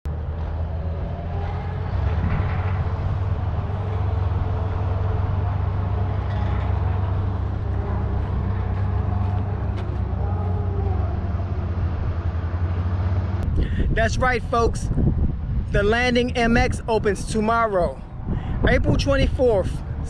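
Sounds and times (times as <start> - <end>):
vehicle engine running: 0.1 - 15.4.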